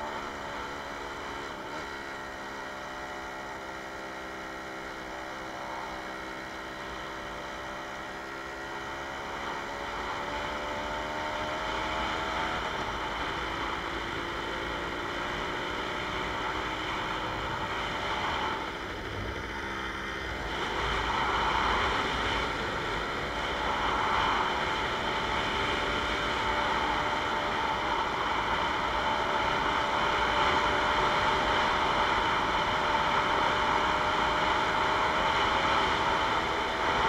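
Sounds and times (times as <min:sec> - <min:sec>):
moped engine running: 0:00.0 - 0:37.0.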